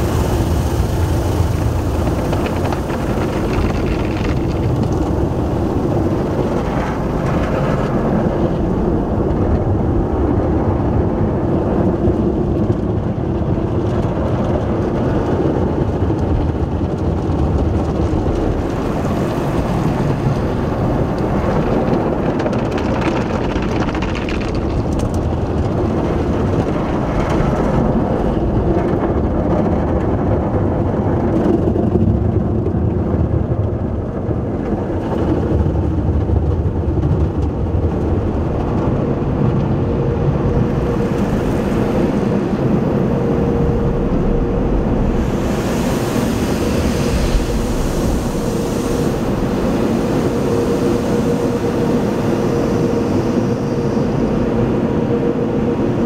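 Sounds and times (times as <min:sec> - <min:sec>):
water spraying onto car: 0:00.0 - 0:10.0.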